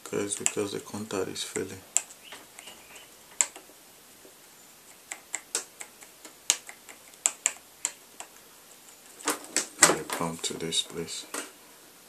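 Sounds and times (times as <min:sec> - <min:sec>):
light clicks and taps on plastic: 0:00.3 - 0:00.7, 0:01.9 - 0:03.7.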